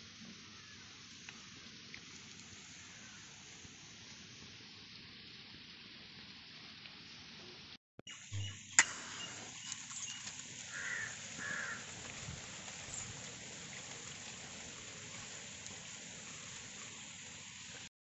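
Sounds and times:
steady hiss: 0:00.0 - 0:17.9
short bird calls: 0:08.1 - 0:11.9.

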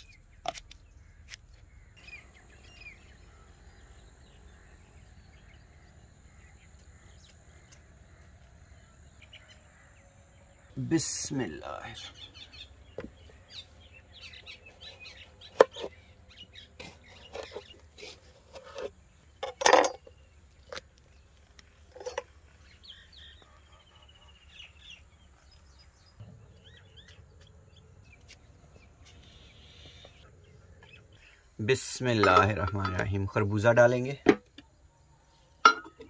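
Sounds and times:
faint bird chirps: 0:00.0 - 0:18.6.

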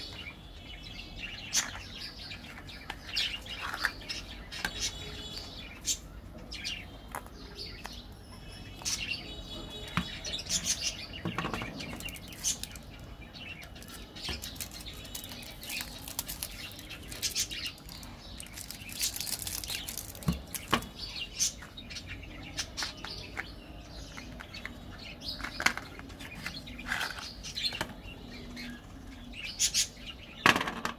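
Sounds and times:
foil wrappers crinkling: 0:12.0 - 0:12.8, 0:13.8 - 0:20.9.

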